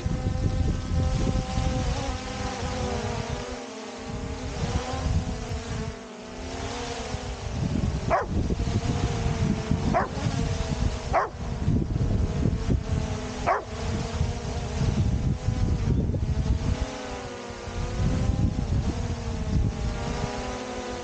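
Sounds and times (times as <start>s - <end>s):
drone propellers whining: 0.0s - 21.0s
wind rumble on microphone: 0.0s - 21.0s
dog barking: 8.1s - 8.3s, 9.9s - 10.2s, 11.1s - 11.4s, 13.5s - 13.7s.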